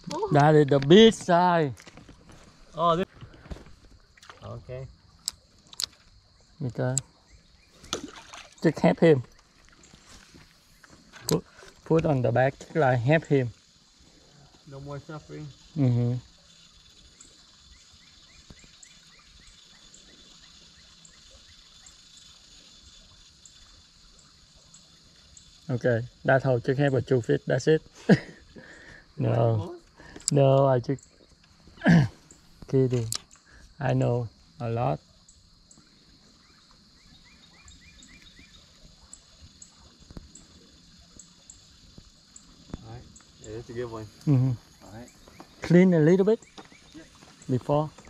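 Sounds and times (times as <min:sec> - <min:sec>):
birds chirping: 0:00.0 - 0:48.0
steady high hiss: 0:10.0 - 0:48.0.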